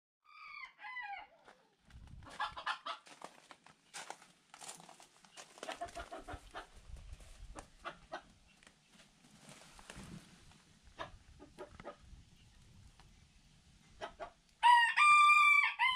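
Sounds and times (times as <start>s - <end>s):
chickens clucking: 1.4s - 3.1s, 5.4s - 8.7s, 10.8s - 12.6s, 13.8s - 14.4s
footsteps on gravel and straw: 1.8s - 7.7s, 9.0s - 10.6s.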